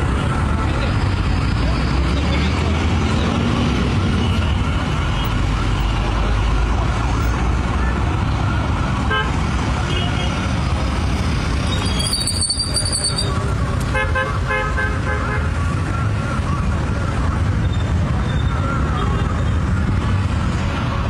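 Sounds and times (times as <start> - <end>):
road traffic: 0.0 - 21.0.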